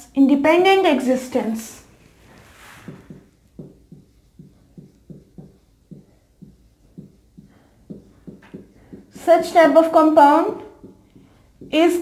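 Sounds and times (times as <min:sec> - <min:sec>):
marker squeaking on whiteboard: 0:02.8 - 0:12.0.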